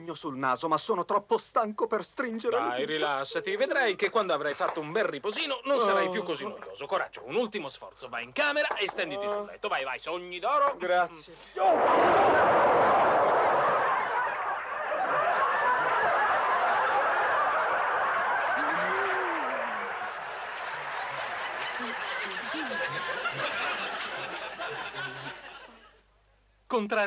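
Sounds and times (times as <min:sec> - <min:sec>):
studio audience laughing: 0:12.1 - 0:26.0.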